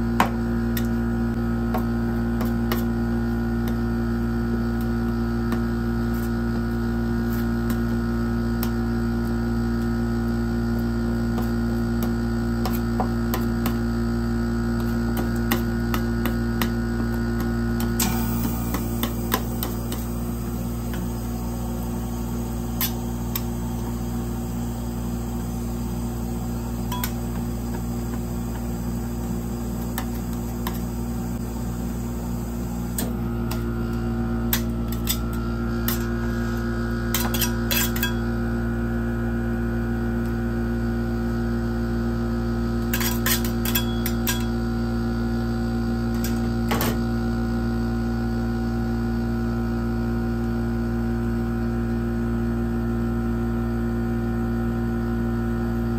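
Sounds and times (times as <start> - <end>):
machine humming: 0.0 - 41.5.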